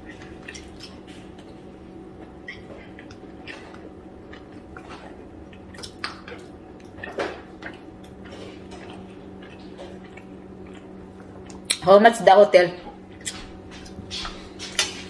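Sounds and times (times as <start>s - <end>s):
chewing: 0.0s - 11.8s
crackles and clicks of food: 0.0s - 11.9s, 13.0s - 15.0s
steady low hum: 0.0s - 15.0s.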